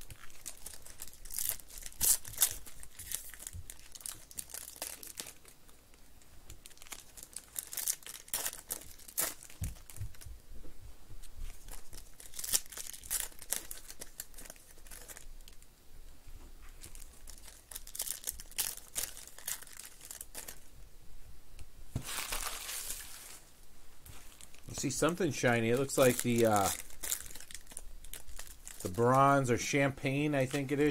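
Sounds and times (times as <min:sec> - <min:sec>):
foil wrapper tearing and crinkling: 0:00.0 - 0:05.6, 0:06.6 - 0:10.2, 0:11.5 - 0:15.6, 0:16.8 - 0:20.7, 0:22.0 - 0:23.4, 0:24.3 - 0:29.5.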